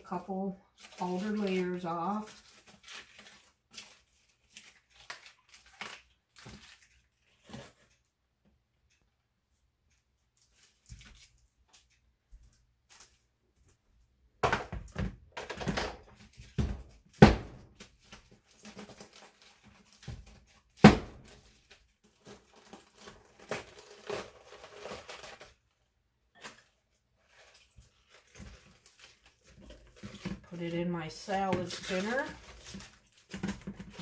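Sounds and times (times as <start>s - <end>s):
lettuce leaves tearing: 0.7s - 7.8s, 17.8s - 25.6s.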